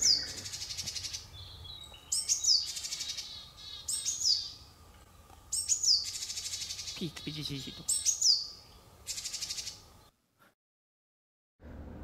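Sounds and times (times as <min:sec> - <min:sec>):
buzzy bird call series: 0:00.0 - 0:04.6, 0:05.5 - 0:09.9.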